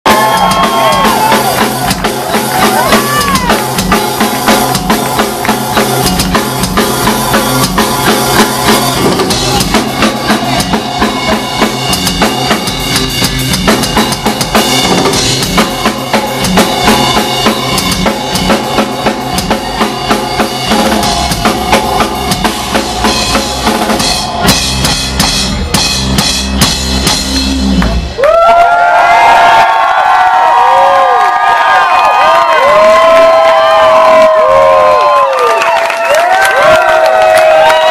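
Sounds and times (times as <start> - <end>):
electric bass solo: 0.1 - 28.2
rapid drum hits: 0.1 - 28.2.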